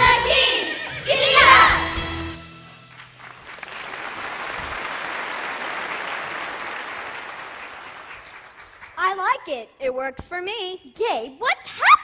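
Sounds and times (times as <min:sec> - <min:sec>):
audience applauding: 0:02.7 - 0:09.0.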